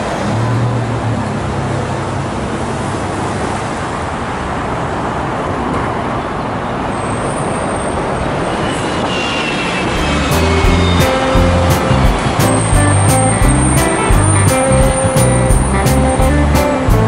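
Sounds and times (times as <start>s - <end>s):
road traffic: 0.0s - 17.0s.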